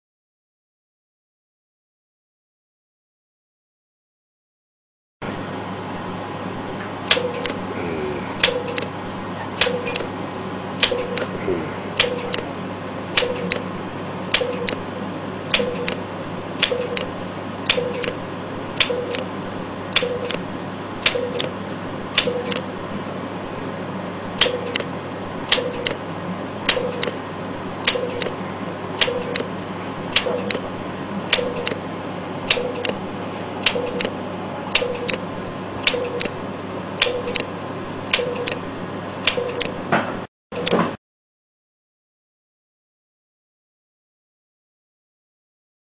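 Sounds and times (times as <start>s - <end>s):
steady electrical hum: 5.2s - 39.9s
sharp device clicks: 8.4s - 8.9s, 9.6s - 10.1s, 10.8s - 11.3s, 12.0s - 12.5s, 13.2s - 13.7s, 14.3s - 14.8s, 15.5s - 16.0s, 16.6s - 18.2s, 18.8s - 19.3s, 19.9s - 20.4s, 21.0s - 22.7s, 24.4s - 24.9s, 25.5s - 26.0s, 26.6s - 27.2s, 27.8s - 28.4s, 29.0s - 29.5s, 30.1s - 30.6s, 31.3s - 31.8s, 32.5s - 33.0s, 33.6s - 35.2s, 35.8s - 36.4s, 37.0s - 37.5s, 38.1s - 38.6s, 39.2s - 39.8s.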